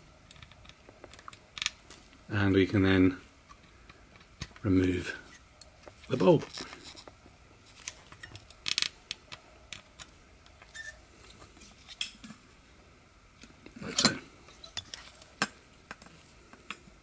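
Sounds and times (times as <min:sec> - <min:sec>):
small parts clicking and clinking: 0:07.8 - 0:10.9.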